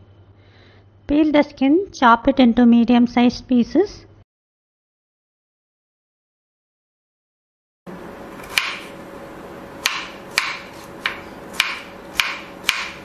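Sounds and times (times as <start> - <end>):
knife chopping on plastic board: 8.4 - 9.0, 9.8 - 13.0.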